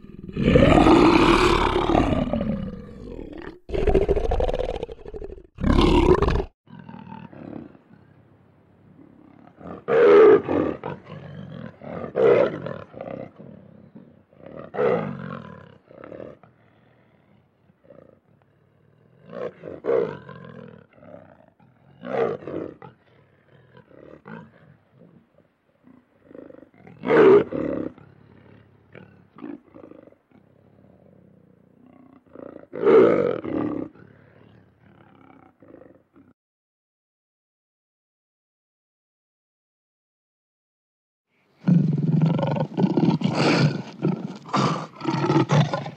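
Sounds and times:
lion grunting: 0.0s - 6.5s, 41.6s - 45.9s
lion roaring: 0.0s - 7.8s, 25.9s - 36.2s, 41.6s - 45.9s.

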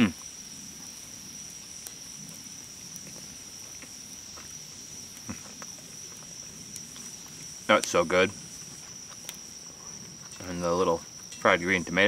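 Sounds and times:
insects droning: 0.0s - 12.0s
faint chewing: 3.0s - 8.0s.

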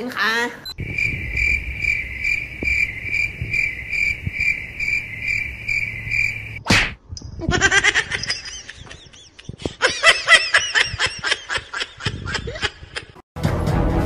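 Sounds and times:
high-pitched giggling laughter: 7.4s - 13.2s.

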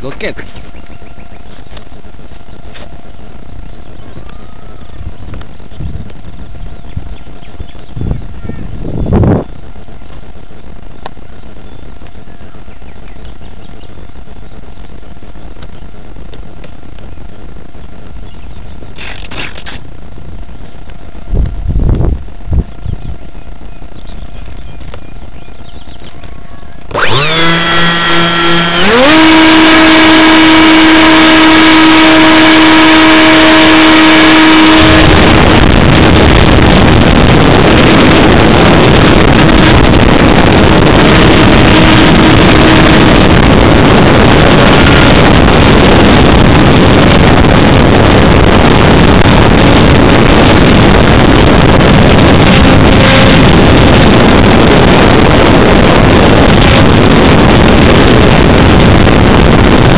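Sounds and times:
wind rushing on microphone: 0.0s - 59.9s
electric motor whine: 26.7s - 59.9s.

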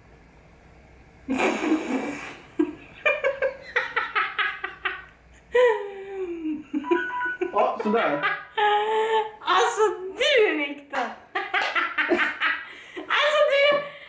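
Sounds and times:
person laughing heartily: 1.3s - 9.4s, 11.4s - 13.0s.

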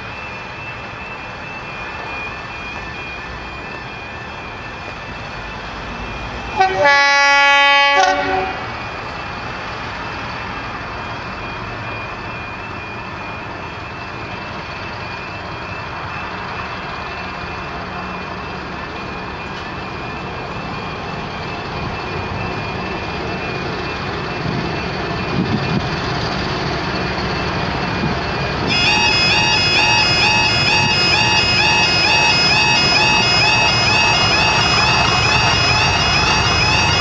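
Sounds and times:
crossing warning alarm tone: 0.0s - 37.0s
diesel train engine: 0.0s - 37.0s.

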